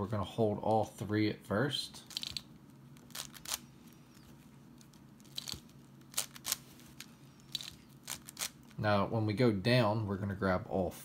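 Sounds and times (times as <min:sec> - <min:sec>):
faint low hum: 0:00.0 - 0:11.0
puzzle cube clicking: 0:02.1 - 0:03.6, 0:05.2 - 0:08.6.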